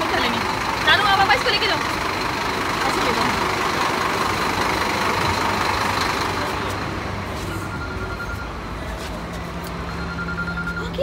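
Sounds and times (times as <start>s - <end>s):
bus engine running: 0.0s - 11.0s
low hum inside bus: 0.0s - 11.0s.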